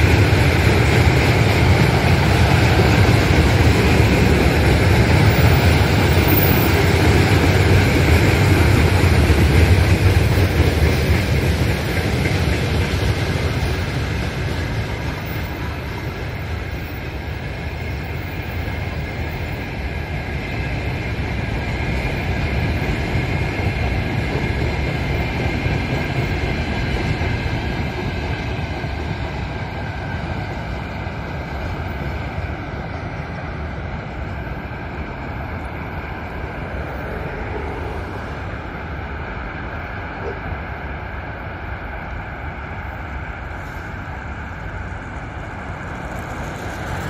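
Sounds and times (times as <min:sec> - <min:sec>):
freight train wagons rolling on rails: 0:00.0 - 0:47.0.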